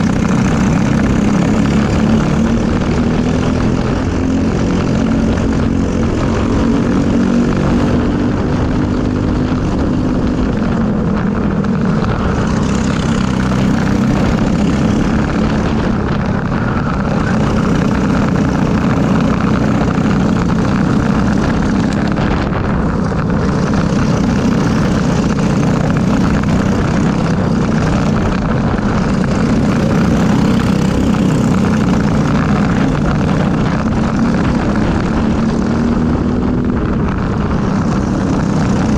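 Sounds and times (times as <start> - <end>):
kart engine racing: 0.0 - 38.9
other kart engines: 0.0 - 38.9.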